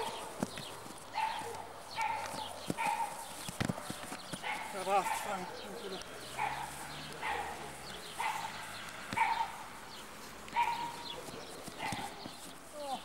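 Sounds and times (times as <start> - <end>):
dog barking: 0.0 - 0.3, 1.2 - 5.6, 6.3 - 8.6, 9.2 - 9.7, 10.5 - 11.1, 11.8 - 12.2.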